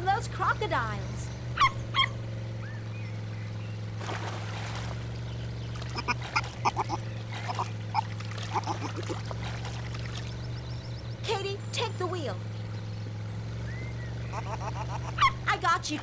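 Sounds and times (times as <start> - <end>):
cartoon otter squeaking: 6.0 - 7.7, 8.5 - 9.2, 14.3 - 15.5.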